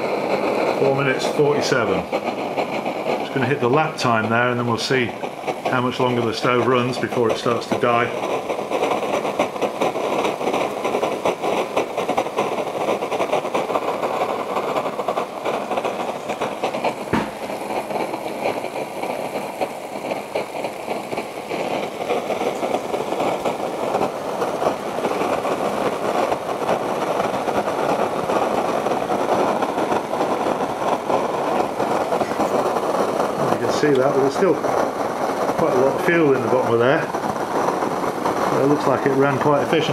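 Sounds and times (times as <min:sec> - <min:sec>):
stove burner rushing: 0:00.0 - 0:39.9
water boiling: 0:00.0 - 0:39.9
sharp knock: 0:17.1 - 0:17.5.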